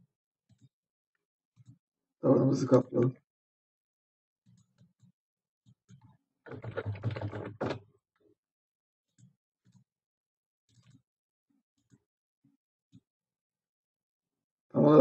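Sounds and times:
computer mouse and keyboard clicks: 4.4s - 7.8s, 10.7s - 11.0s.

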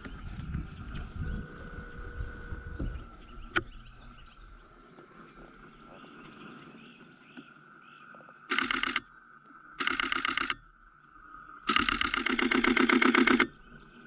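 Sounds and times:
frogs and insects chorus: 0.0s - 14.0s
rapid camera shutter clicks: 8.5s - 9.0s, 9.8s - 10.6s, 11.7s - 13.6s
sharp click: 8.5s - 9.1s, 9.8s - 10.6s, 11.7s - 13.5s.

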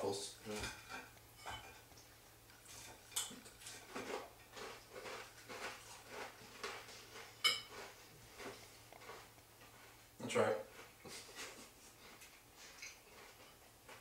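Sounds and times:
cutlery clinking on dishes: 0.5s - 1.9s, 2.7s - 5.8s, 6.6s - 7.9s.

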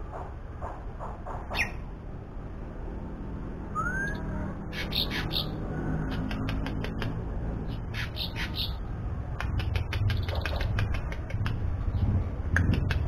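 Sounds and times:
songbirds chirping and whistling: 1.3s - 1.9s, 3.7s - 10.9s.

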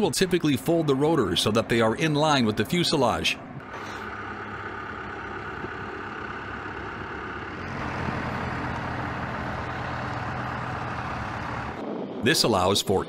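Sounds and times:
tow tractor engines humming: 0.0s - 13.0s.

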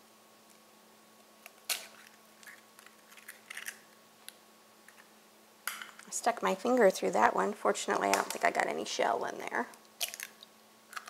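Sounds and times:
egg cracking: 1.4s - 5.1s, 9.7s - 11.0s
eggshell crackling: 9.7s - 11.0s.

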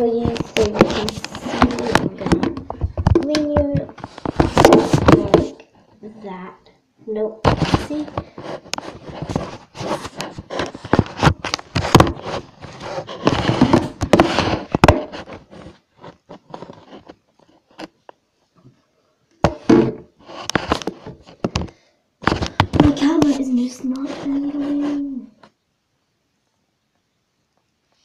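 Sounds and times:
camera handling knocks and scrapes: 0.3s - 5.5s, 7.4s - 18.0s, 19.4s - 23.0s.

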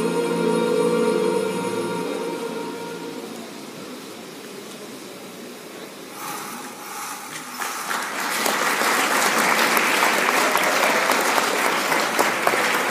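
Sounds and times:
orchestral music: 0.0s - 3.6s
audience applauding: 7.3s - 12.9s.

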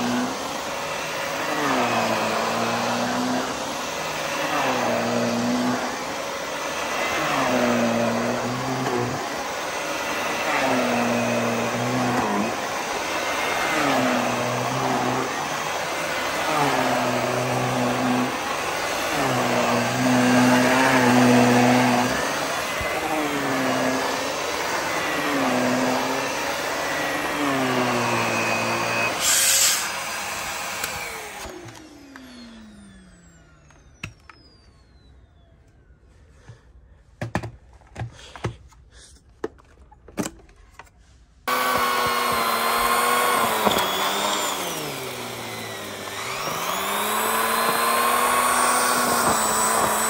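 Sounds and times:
vacuum cleaner running: 0.0s - 36.6s, 41.5s - 50.0s
motor winding down whine: 10.2s - 36.2s, 41.5s - 50.0s.

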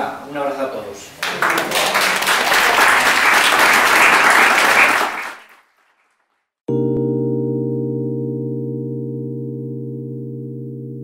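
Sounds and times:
audience applauding: 1.2s - 6.3s.

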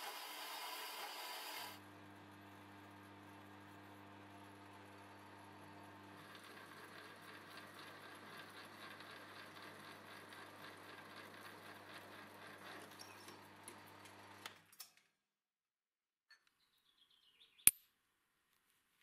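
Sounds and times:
drill crackling through steel: 0.0s - 1.8s
drill press motor hum: 0.0s - 14.4s.

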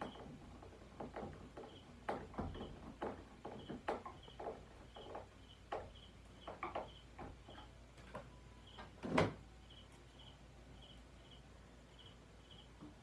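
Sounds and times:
clicks and knocks on wooden shelf: 0.0s - 9.4s.

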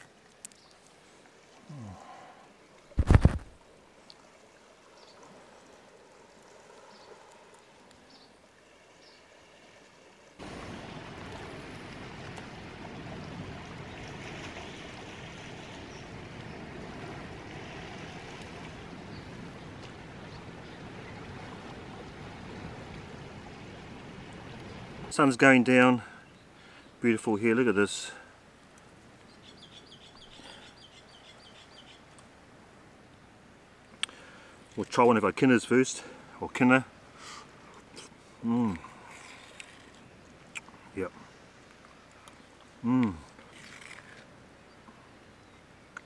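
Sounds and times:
sea washing on stony shore: 9.6s - 25.2s
faint ticks: 33.9s - 34.8s.

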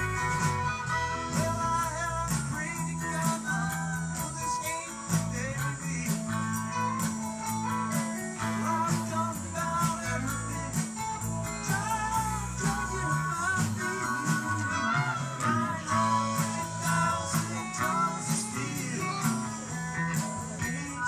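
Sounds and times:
electric guitar lead line bending: 0.0s - 21.0s
live rock band playing: 0.0s - 21.0s.

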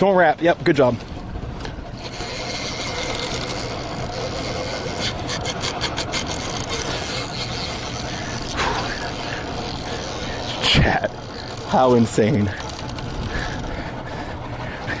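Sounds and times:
reel clicking: 1.6s - 14.3s
fishing reel rasping: 2.0s - 14.4s.

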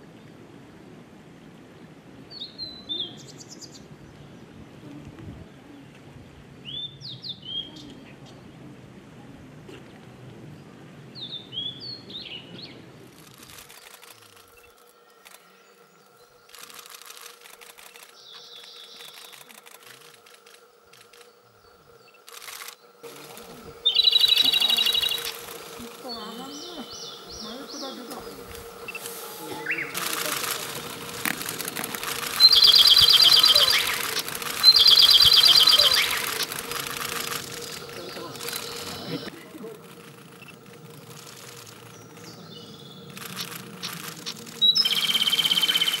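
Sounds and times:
bursts of hiss: 13.0s - 46.0s
bird rattling trill: 13.2s - 46.0s
bird singing high calls: 17.9s - 20.2s, 20.9s - 39.3s, 41.5s - 46.0s.

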